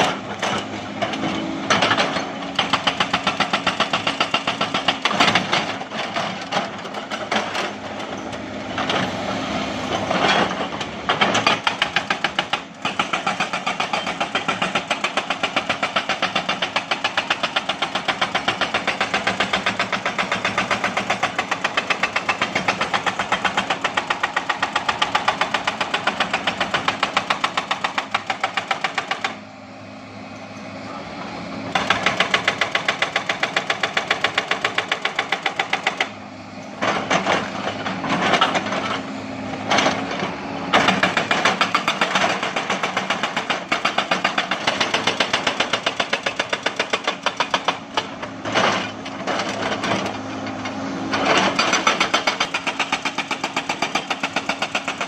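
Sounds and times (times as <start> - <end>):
hydraulic rock breaker hammering: 0.0 - 9.1, 9.9 - 29.4, 31.7 - 55.0
excavator diesel engine running: 0.0 - 55.0.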